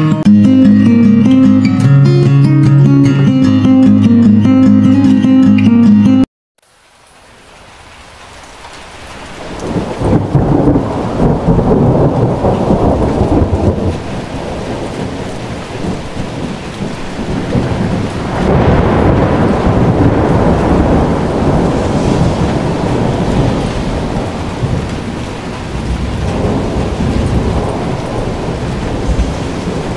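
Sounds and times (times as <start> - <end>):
heavy rain pouring: 6.6 - 29.9.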